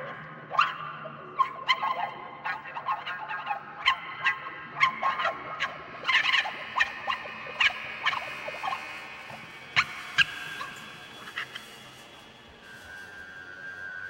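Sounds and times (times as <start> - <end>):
sustained ringing tone: 7.1 - 14.0.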